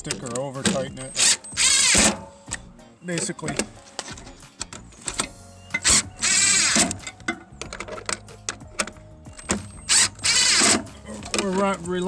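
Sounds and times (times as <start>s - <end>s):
impact wrench bursts: 1.0s - 2.3s, 5.7s - 7.0s, 9.4s - 10.8s.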